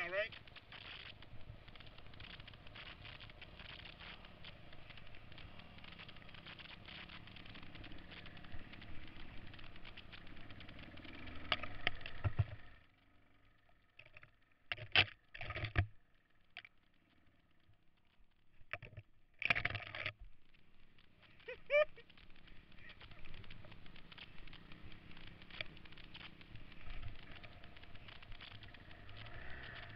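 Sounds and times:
motorcycle engine: 0.0 - 14.8, 20.7 - 29.9
wind noise: 22.7 - 29.9.

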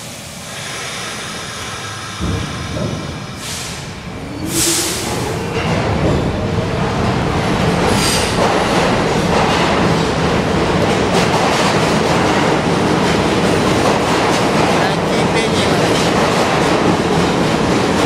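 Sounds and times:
air hisses: 0.0 - 5.4.

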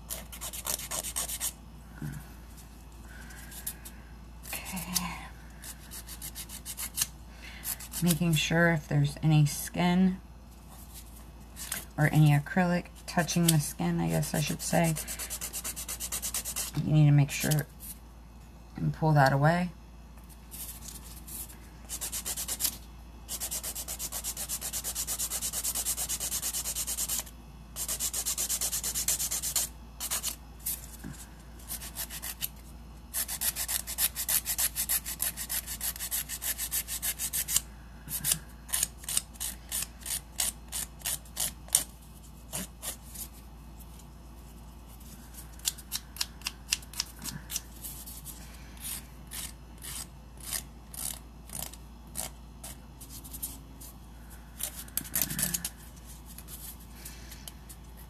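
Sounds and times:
nail file rasping on nails: 0.1 - 1.6, 5.7 - 8.2, 14.8 - 16.7, 21.9 - 30.4, 31.6 - 32.5, 33.1 - 37.6, 38.2 - 41.9, 48.8 - 53.5, 54.6 - 55.8.

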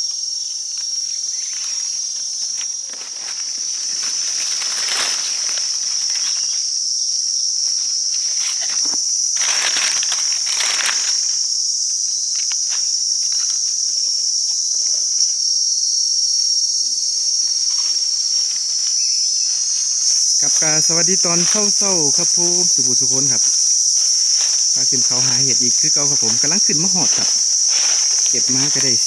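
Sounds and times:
insects droning: 0.0 - 29.0
rustling: 2.4 - 6.6, 19.5 - 29.0.

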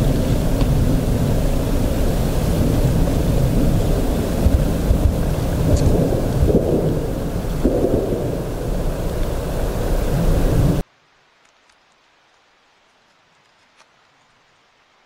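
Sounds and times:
loud low rumbling noise: 0.0 - 10.8
faint ticks: 11.4 - 14.7.

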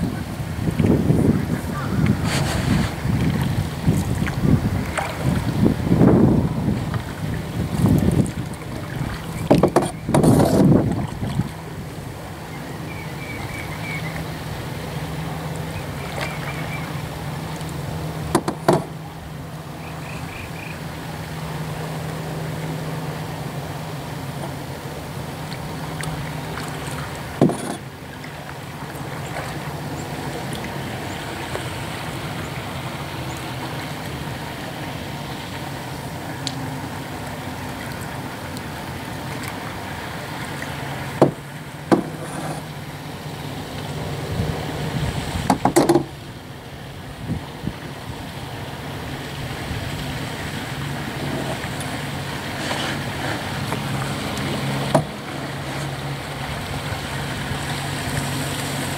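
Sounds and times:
low engine hum: 0.0 - 58.9
paddle strokes in water: 0.0 - 58.9
paddle knocking against hull: 2.0 - 11.5, 18.2 - 19.0, 27.3 - 27.9, 41.1 - 42.7, 45.4 - 46.2, 54.8 - 55.2.

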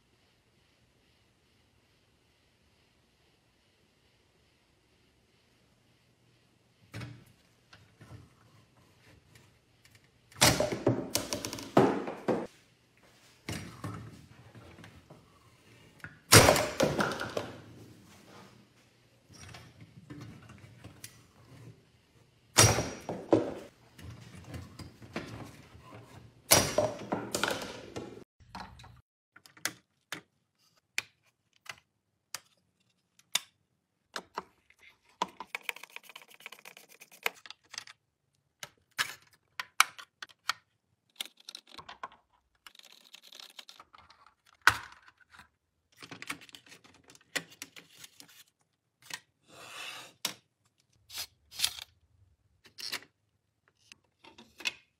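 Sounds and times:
plastic cups crashing over: 16.4 - 17.7.

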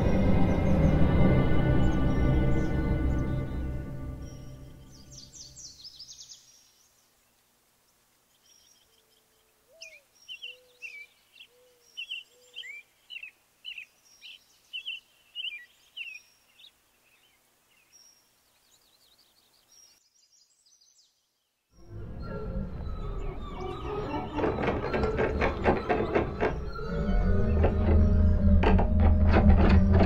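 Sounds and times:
music: 0.0 - 5.5, 21.8 - 30.0
birds chirping: 0.0 - 30.0.

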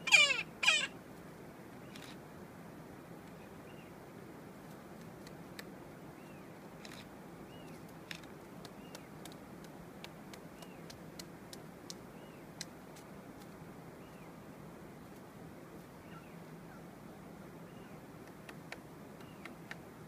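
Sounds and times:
steady outdoor hiss: 0.0 - 20.0
woodpecker tapping on branch: 8.1 - 12.0, 18.2 - 19.8.

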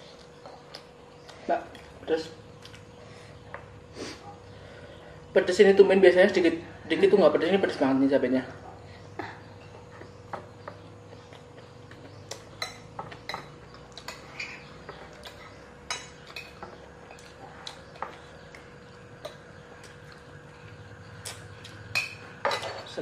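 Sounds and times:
faint steady hum: 0.0 - 23.0
metal spoons clinking on plates: 12.6 - 17.4, 21.9 - 23.0.

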